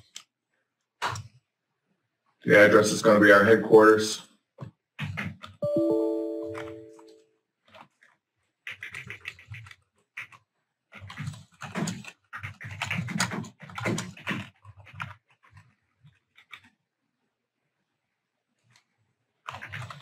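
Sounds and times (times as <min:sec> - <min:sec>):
keyboard typing clicks: 0:05.2 - 0:07.2.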